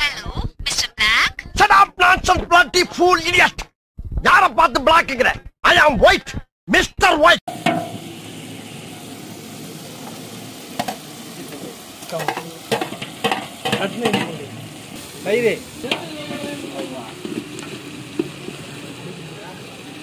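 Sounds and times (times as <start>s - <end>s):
food sizzling in a pot: 7.5s - 20.0s
spoon scraping and knocking pot: 12.2s - 14.4s.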